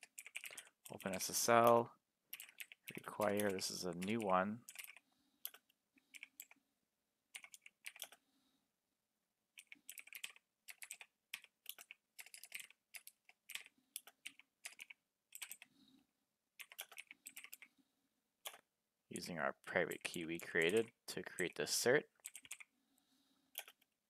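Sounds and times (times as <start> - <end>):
typing on computer keyboard: 0.0 - 6.6, 7.3 - 8.2, 9.6 - 15.7, 16.6 - 17.7, 18.4 - 18.6, 22.2 - 22.7, 23.5 - 24.0.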